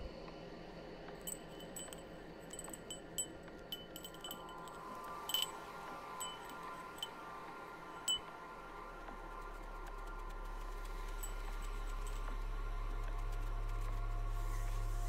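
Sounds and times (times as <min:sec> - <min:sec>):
wind chimes tinkling: 0:01.3 - 0:07.2, 0:08.0 - 0:08.3.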